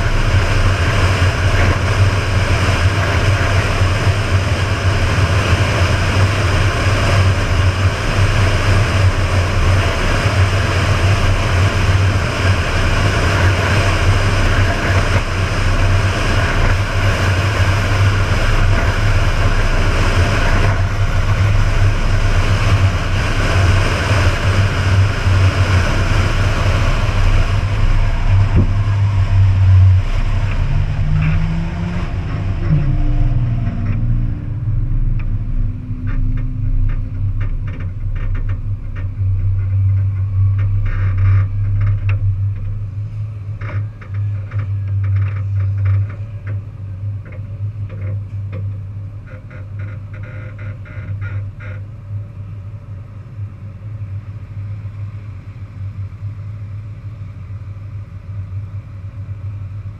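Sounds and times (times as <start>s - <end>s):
wind rushing over camera: 0.0s - 45.8s
road noise: 0.0s - 59.9s
truck engine drone: 0.0s - 59.9s.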